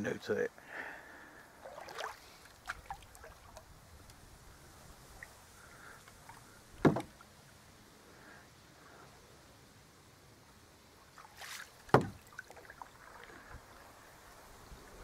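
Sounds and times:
paddle splashing in water: 0:01.6 - 0:03.7, 0:05.1 - 0:07.3, 0:11.0 - 0:14.2
paddle clicks: 0:06.0 - 0:07.2
loud knock on canoe hull: 0:06.8 - 0:07.1, 0:11.9 - 0:12.2.

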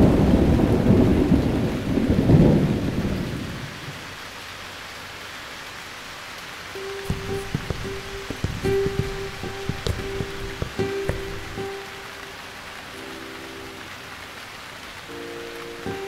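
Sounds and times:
rolling thunder: 0:00.0 - 0:03.7
rain hiss: 0:00.0 - 0:16.0
plucked-string tune: 0:06.8 - 0:12.5.

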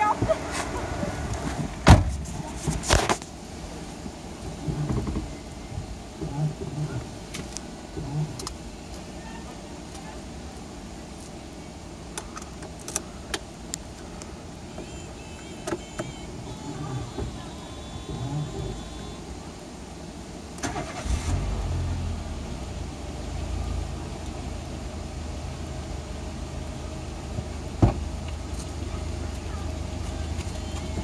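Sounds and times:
car engine idling: 0:03.2 - 0:31.0.

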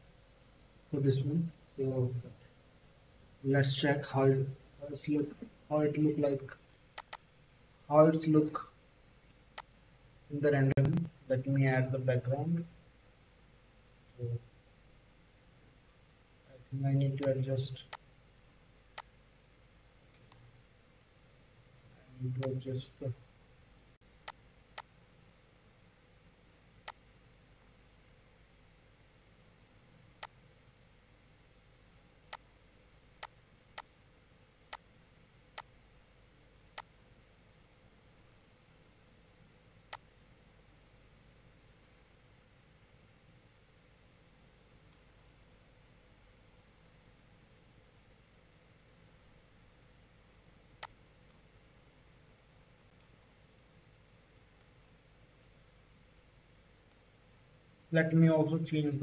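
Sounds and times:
faint steady hum: 0:00.0 - 0:59.0
mouse and keyboard clicks: 0:07.0 - 0:07.4, 0:22.4 - 0:22.6.

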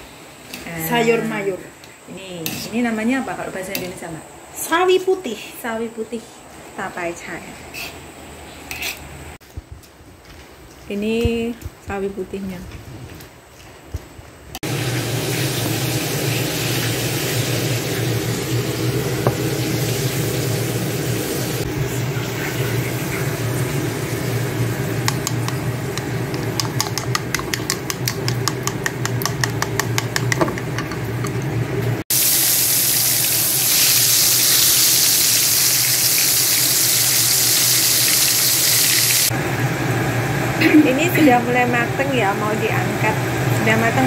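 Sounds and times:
deep-frying sizzle in hot oil: 0:14.6 - 0:26.2, 0:32.1 - 0:39.3
chopsticks beating eggs in bowl: 0:25.0 - 0:31.4.

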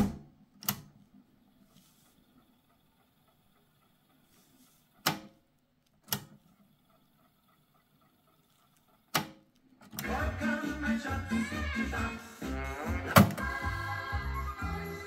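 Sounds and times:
music from cassette deck: 0:10.0 - 0:15.0.

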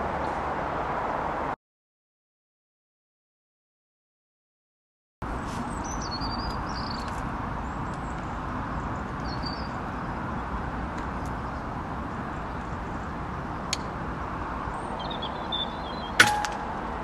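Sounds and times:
outdoor background rumble: 0:00.0 - 0:01.6, 0:05.2 - 0:17.0
bird chirps: 0:05.6 - 0:10.0, 0:14.6 - 0:16.2.

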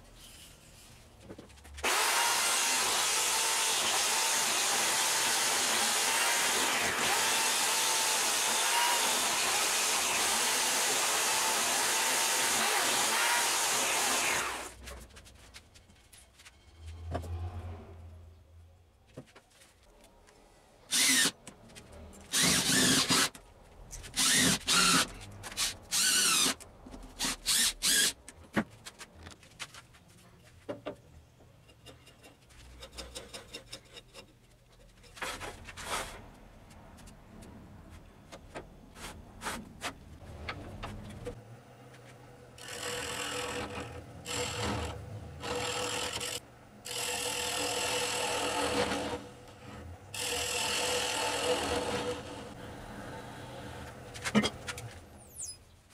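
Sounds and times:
gouge cutting spinning log: 0:01.8 - 0:14.7, 0:42.6 - 0:53.8
power drill driving screws: 0:01.8 - 0:14.7, 0:20.9 - 0:21.4, 0:22.3 - 0:23.4, 0:24.2 - 0:26.6, 0:27.2 - 0:28.2, 0:42.6 - 0:52.4
wood lathe running: 0:01.8 - 0:14.7, 0:42.6 - 0:54.1.

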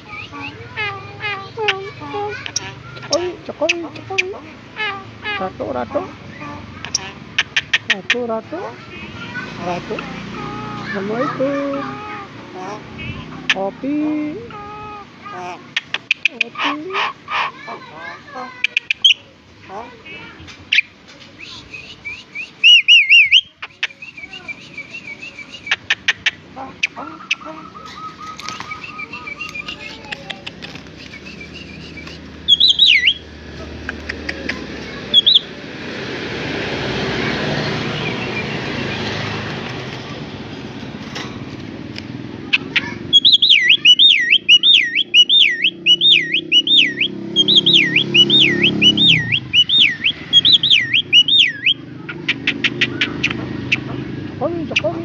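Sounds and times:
rushing background noise: 0:00.0 - 0:55.0
bird whistling calls: 0:20.7 - 0:30.2, 0:30.9 - 0:33.3, 0:35.1 - 0:35.5, 0:42.5 - 0:53.8.

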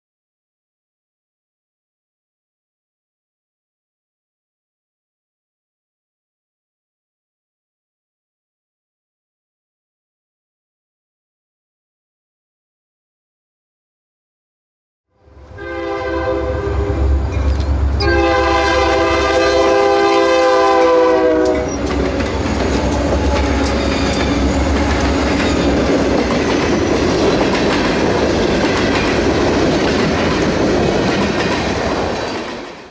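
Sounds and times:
locomotive air horn: 0:15.4 - 0:17.2, 0:18.0 - 0:21.9
train wheels clattering on rail: 0:21.2 - 0:32.9.

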